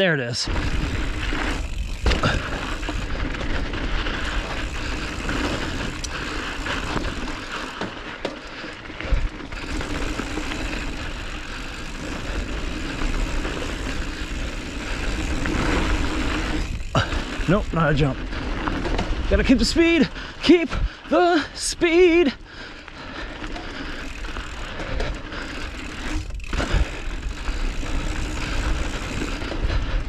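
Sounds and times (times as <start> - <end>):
low rumble of bike tyres: 0.5 - 30.0
bike knocking over bumps: 0.6 - 10.9.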